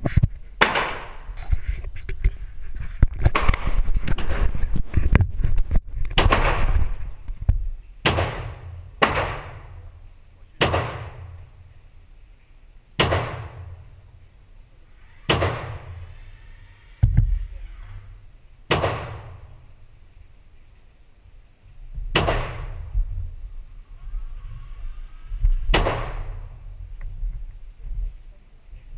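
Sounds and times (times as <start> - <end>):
rifle firing single shots: 0.6 - 1.3, 8.0 - 9.8, 10.6 - 11.5, 13.0 - 14.0, 15.3 - 16.0, 18.7 - 19.6, 22.1 - 22.8, 25.7 - 26.6.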